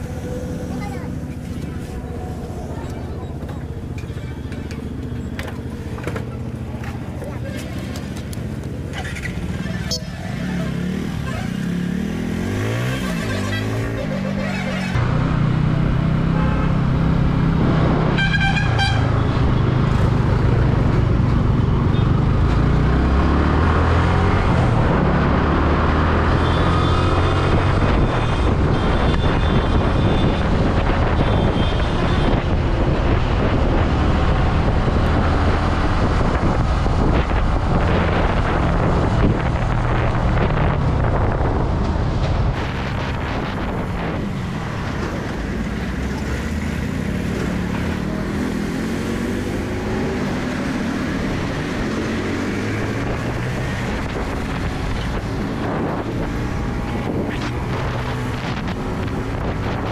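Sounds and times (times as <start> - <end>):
road traffic: 0.0 - 59.9
vehicle horn toot: 18.2 - 19.1.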